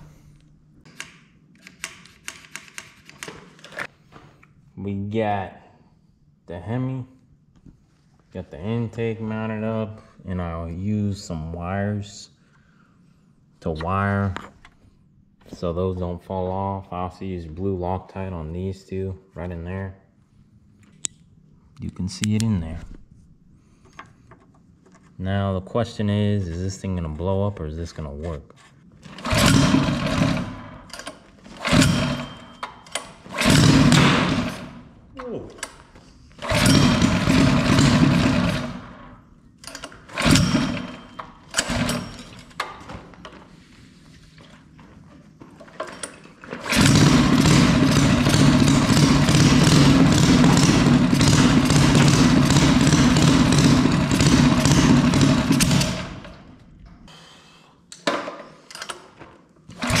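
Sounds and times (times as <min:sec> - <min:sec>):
small engine pull-started and running: 0:29.0 - 0:34.9, 0:36.4 - 0:39.0, 0:39.6 - 0:42.6, 0:45.6 - 0:56.5, 0:59.7 - 1:00.0.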